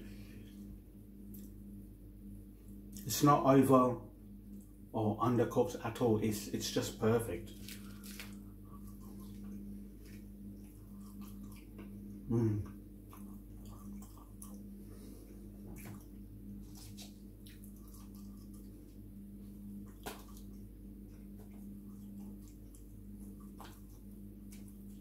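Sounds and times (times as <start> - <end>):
steady low hum: 0.0 - 25.0
chewing soft chips: 7.5 - 12.2, 13.0 - 19.2, 19.8 - 25.0.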